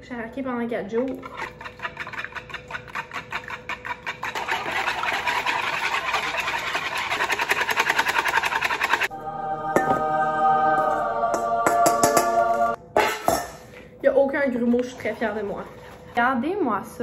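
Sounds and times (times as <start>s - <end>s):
whisk beating batter in bowl: 1.0s - 9.1s, 14.5s - 17.0s
background music: 9.1s - 13.4s.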